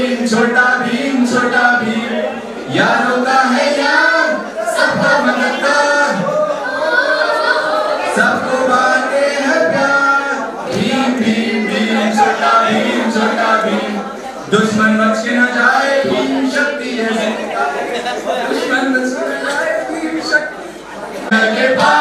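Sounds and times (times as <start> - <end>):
choir singing: 0.0 - 14.1, 21.3 - 22.0.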